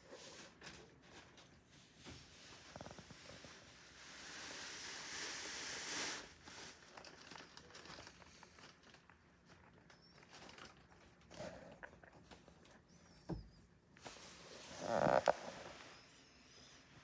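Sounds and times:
cardboard and plastic rustling: 6.4 - 12.6.

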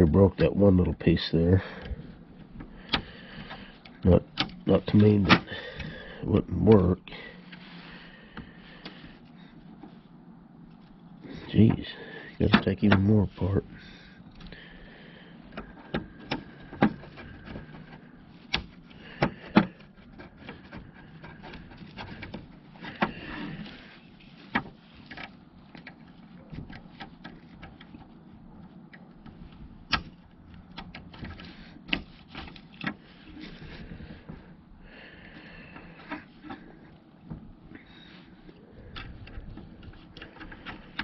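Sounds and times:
faint plastic scraping: 6.8 - 41.0
small sharp plastic clicks: 28.9 - 33.0.

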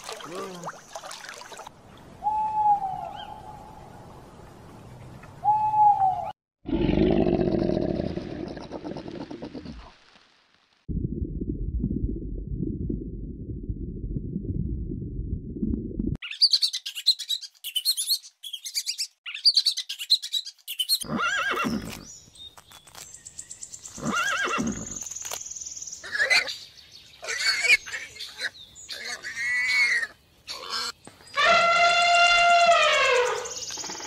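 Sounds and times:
low rumble: 10.9 - 16.2
high bird chirps: 16.2 - 21.0
horses whinnying: 21.0 - 22.0, 24.0 - 25.0.

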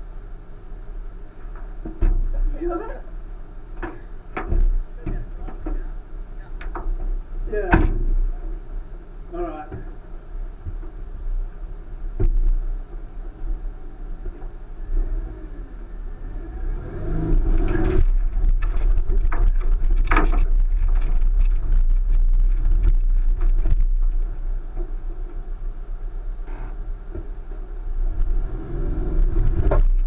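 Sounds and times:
car engine pulling under load: 9.8 - 30.0
car knocking over rocks: 12.2 - 12.6, 17.0 - 25.4, 29.2 - 30.0.

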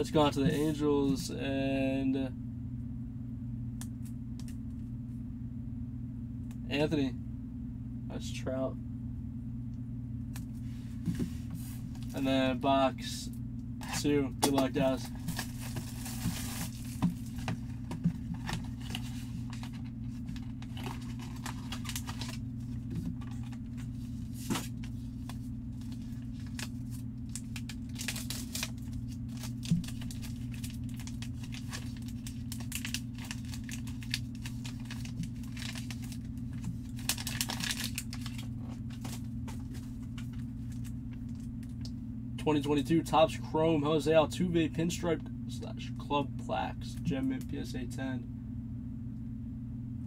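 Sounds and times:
plastic wrapping torn and crinkled: 13.8 - 41.8.

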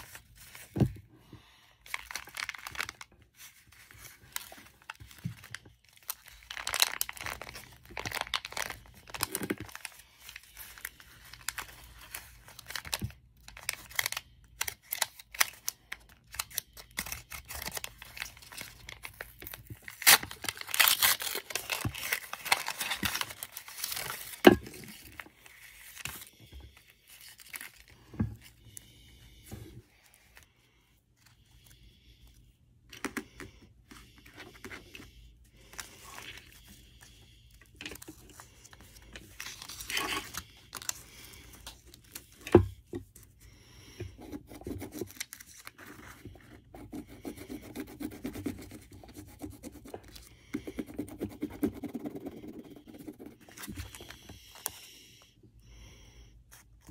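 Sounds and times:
paper rustling and tearing: 1.9 - 26.3, 37.8 - 42.4.

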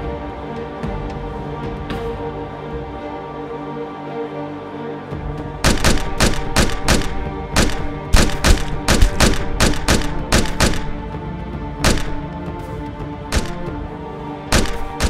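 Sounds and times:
music track: 2.0 - 15.0
handgun shots: 5.6 - 11.0, 11.8 - 12.3, 13.4 - 13.7, 14.5 - 15.0.

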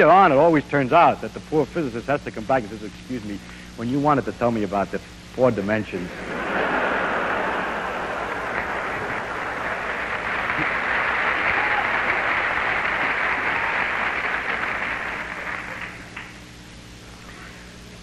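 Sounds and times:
audience applauding: 6.1 - 16.4.

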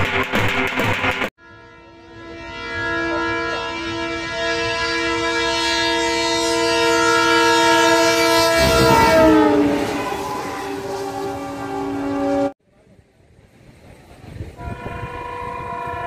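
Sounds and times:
train engine and wheels rushing by: 0.1 - 16.0
locomotive horn blast: 1.4 - 12.6, 14.6 - 16.0.

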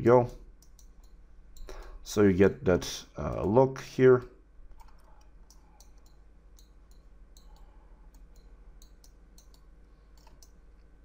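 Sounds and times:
low steady hum: 0.0 - 11.0
faint computer mouse clicks: 4.8 - 10.6.

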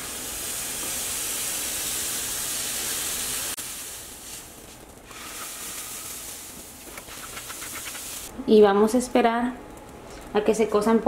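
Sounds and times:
batter sizzling on griddle: 0.0 - 8.3.

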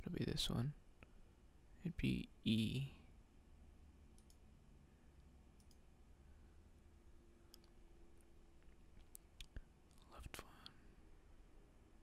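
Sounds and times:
computer mouse clicks: 4.1 - 4.4, 5.6 - 5.8.

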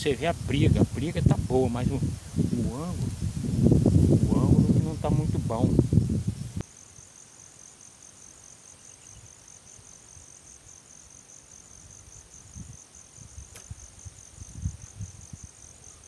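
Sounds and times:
insect trilling: 0.0 - 16.0
single click: 13.5 - 13.7.

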